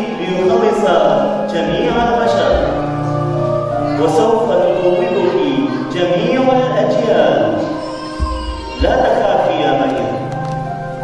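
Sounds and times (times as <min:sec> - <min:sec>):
music with singing voices: 0:00.0 - 0:11.0.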